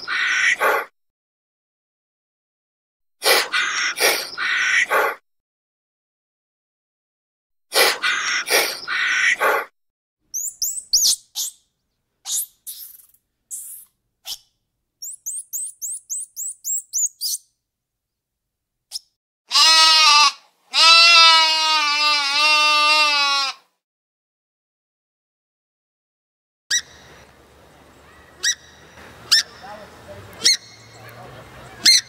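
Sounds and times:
high chirps and twitters: 10.3 - 11.7, 12.3 - 17.5
sheep bleating: 19.5 - 23.7.

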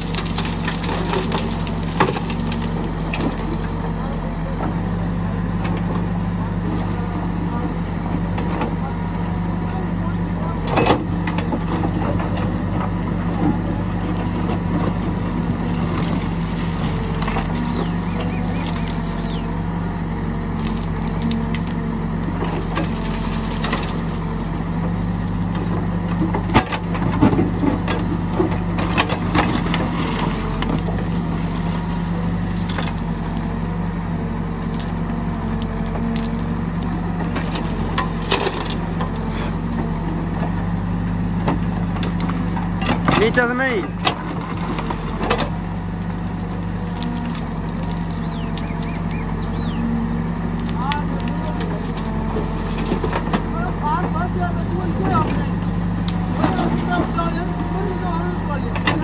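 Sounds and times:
diesel engine under load: 0.0 - 59.0.

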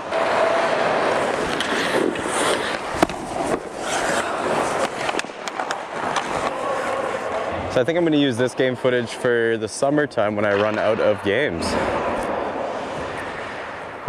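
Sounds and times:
clacks of sticks and puck: 0.0 - 7.5
skate blades scraping ice: 0.0 - 8.4.

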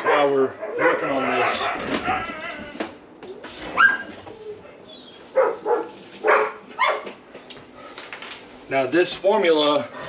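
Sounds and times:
dog barking: 0.0 - 2.2, 5.3 - 7.1.

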